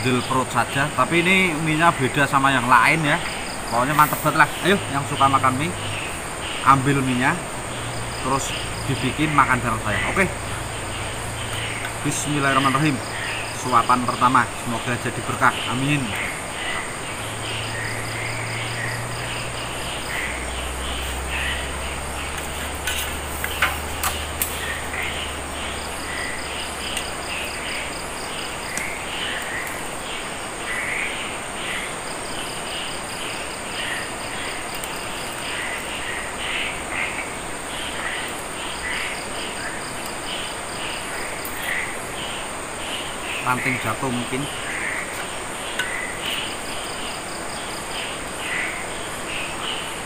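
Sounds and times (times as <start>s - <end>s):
crickets and insects chirping: 0.0s - 50.0s.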